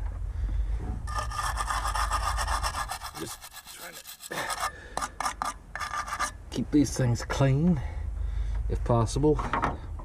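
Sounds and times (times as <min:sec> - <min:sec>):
wire brush scratching metal: 0:01.1 - 0:06.4.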